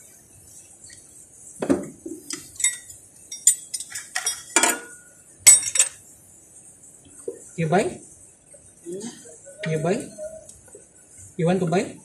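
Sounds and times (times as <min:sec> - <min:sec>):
wrenches clinking against metal: 0:02.3 - 0:06.0.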